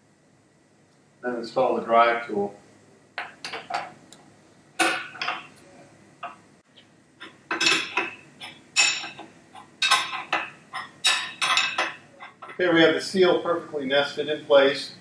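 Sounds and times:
metal-on-metal clinks: 7.5s - 12.6s.

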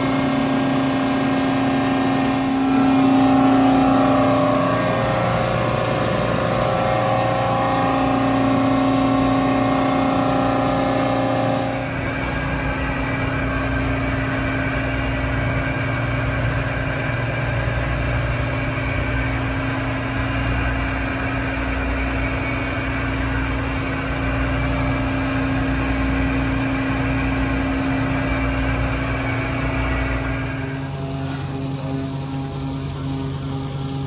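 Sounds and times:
mid-pitched hum: 0.0s - 14.5s, 26.4s - 34.0s
engine room machinery drone: 0.0s - 34.0s.

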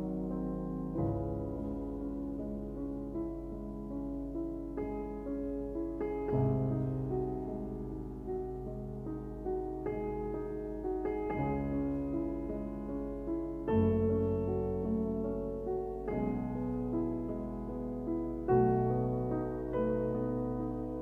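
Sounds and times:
slow soft piano: 0.0s - 21.0s.

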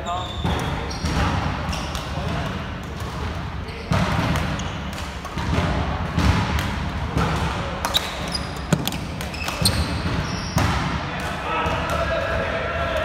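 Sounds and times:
shoes squeaking on wooden floor: 7.9s - 10.6s.

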